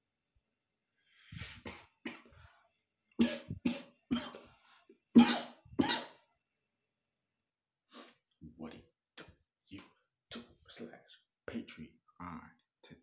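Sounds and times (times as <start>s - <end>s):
man coughing harshly: 3.2s - 4.5s, 5.2s - 6.2s.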